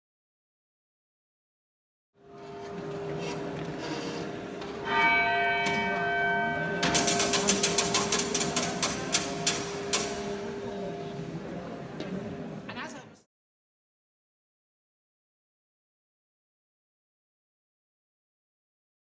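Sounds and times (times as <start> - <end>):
clock bell ringing: 4.7 - 11.2
clock mechanism clicking: 6.8 - 10.3.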